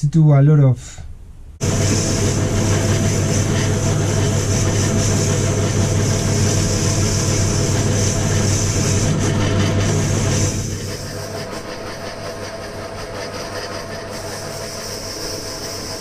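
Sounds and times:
pillar drill motor hum: 1.6 - 16.0.

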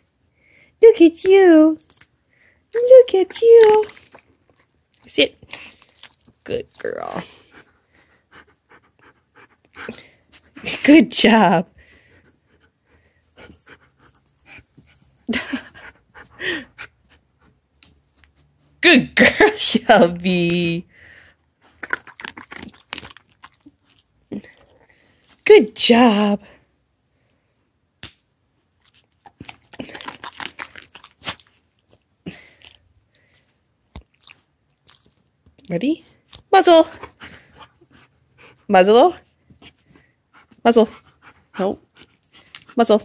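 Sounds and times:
dog crunching and chewing: 3.6 - 10.6, 21.6 - 24.9, 28.8 - 32.9, 33.9 - 35.7.

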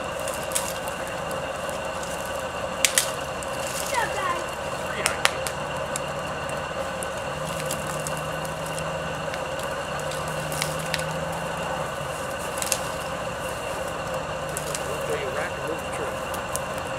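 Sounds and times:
steady background hum: 0.0 - 16.9
dead branches snapping: 0.1 - 4.2, 4.9 - 11.6, 12.2 - 15.0, 16.2 - 16.9.

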